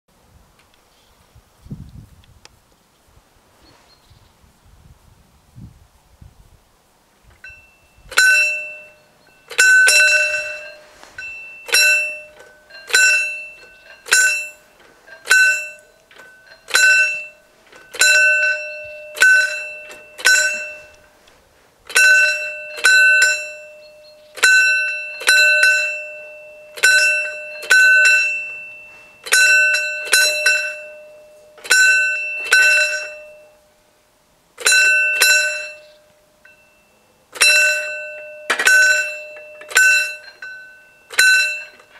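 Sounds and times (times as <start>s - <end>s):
warning bell ringing: 7.4s - 21.2s, 21.9s - 33.8s, 34.6s - 41.9s.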